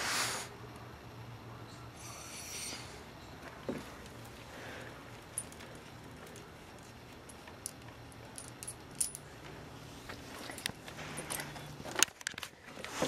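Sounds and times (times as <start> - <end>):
metal dog tags jingling: 5.3 - 9.3.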